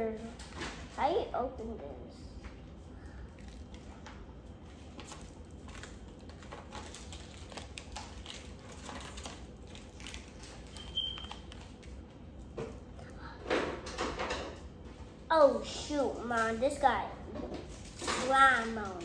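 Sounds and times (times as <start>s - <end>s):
plastic packet crinkling: 4.9s - 12.1s.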